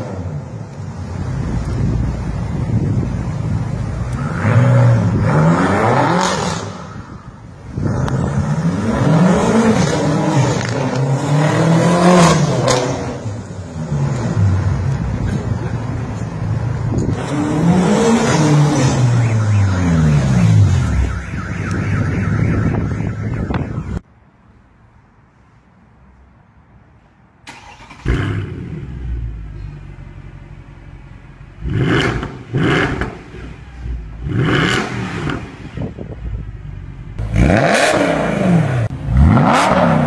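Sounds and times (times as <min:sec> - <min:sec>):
car engine revving: 0:07.7 - 0:15.4, 0:17.0 - 0:23.1, 0:31.5 - 0:35.9, 0:37.1 - 0:40.0.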